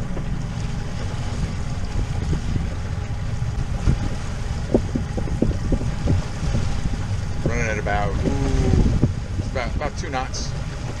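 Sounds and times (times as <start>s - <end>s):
boat motor rumbling: 0.0s - 11.0s
wind on microphone: 0.0s - 11.0s.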